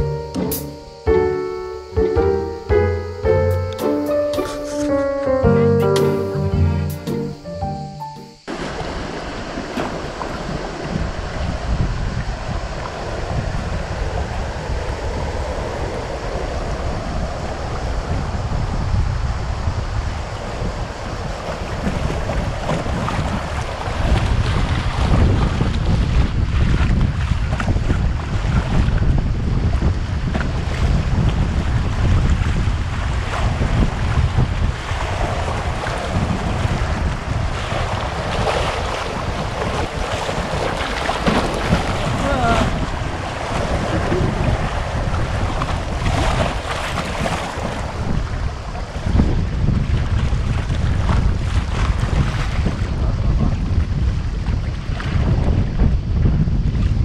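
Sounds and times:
wind buffeting microphone: 8.4 - 57.0
river water rushing over riffle: 8.5 - 18.3, 32.6 - 49.2.

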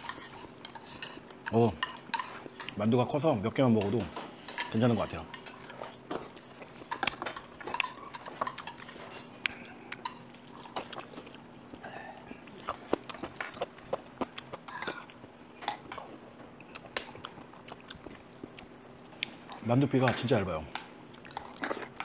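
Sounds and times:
faint steady hum: 0.0 - 22.0
chewing: 5.4 - 19.6, 20.7 - 22.0.

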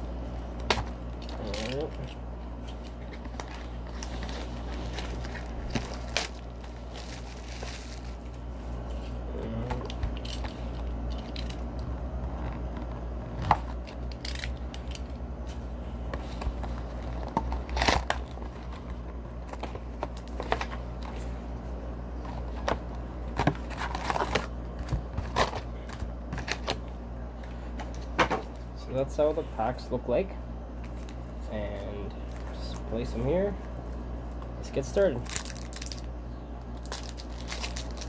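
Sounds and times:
packaging rustling: 0.8 - 8.4, 35.2 - 36.1, 36.8 - 38.0
card packs clicking and knocking: 22.3 - 26.8.

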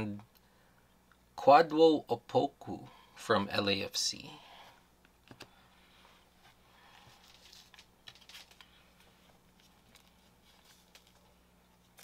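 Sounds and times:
low steady hum: 0.0 - 12.0
trading cards clicking and rustling: 7.1 - 12.0.

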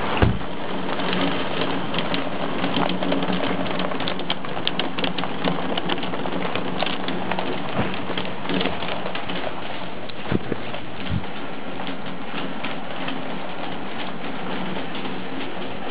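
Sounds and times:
heavy rain and hail: 0.0 - 15.9
loud knock: 0.2 - 0.4.

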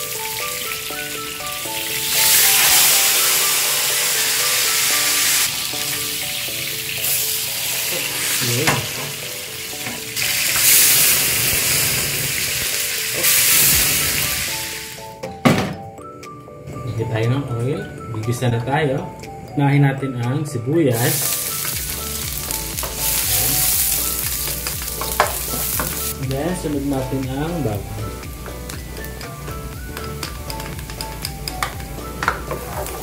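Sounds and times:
fish sizzling in hot oil: 0.0 - 15.2, 20.9 - 33.0.

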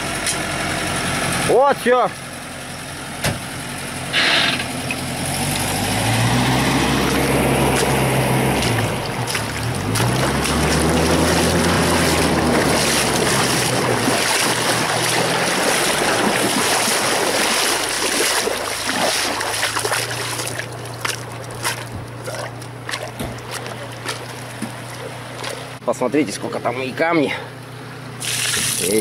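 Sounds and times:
vehicle engine running: 0.0 - 29.0
river water rushing: 5.6 - 25.8.

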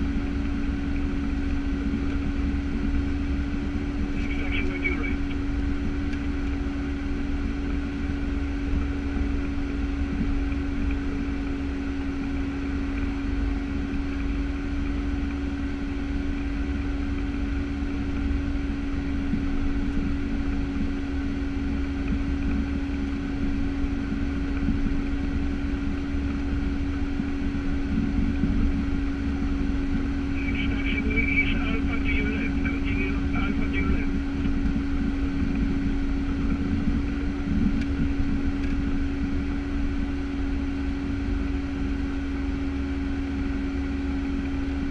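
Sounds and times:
turboprop engines droning: 0.0 - 44.9.

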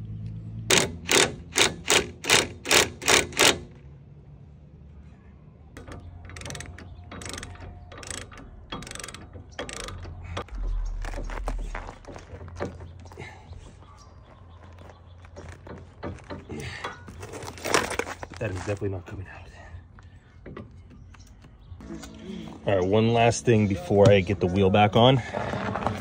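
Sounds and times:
cordless ratchet pulses: 5.8 - 12.2
hand ratchet wrench clicking: 6.3 - 10.1.

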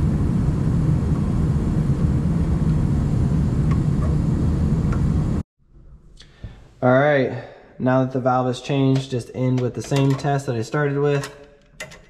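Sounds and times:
gas furnace whirring: 0.0 - 5.4.

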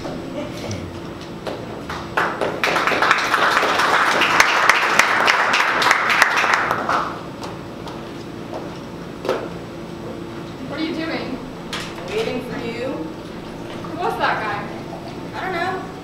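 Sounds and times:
audience applauding: 1.9 - 7.3.

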